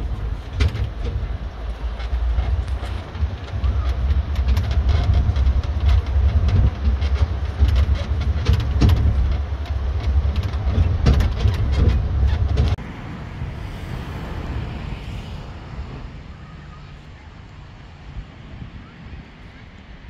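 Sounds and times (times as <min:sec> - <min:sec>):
carriage rattles and clicks: 0:00.0 - 0:12.8
train carriage rumbling: 0:00.0 - 0:18.6.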